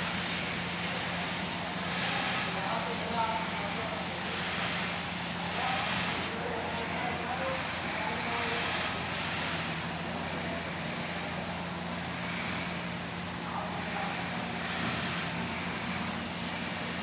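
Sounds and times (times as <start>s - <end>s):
laser cutter fans humming: 0.0s - 17.0s.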